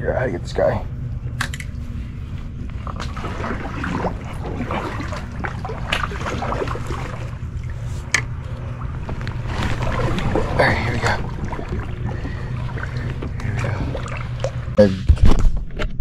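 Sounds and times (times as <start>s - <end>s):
water sloshing around kayak: 2.5s - 14.8s.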